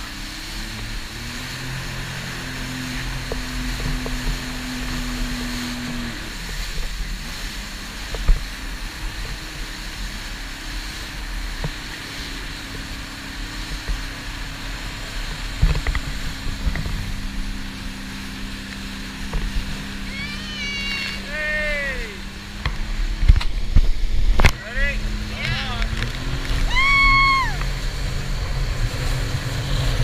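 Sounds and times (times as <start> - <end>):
wind and spray rushing: 0.0 - 20.1, 21.0 - 30.0
hull slapping water: 0.0 - 30.0
jet ski engine hum: 0.0 - 30.0
person calling out: 20.1 - 22.3, 25.3 - 25.9.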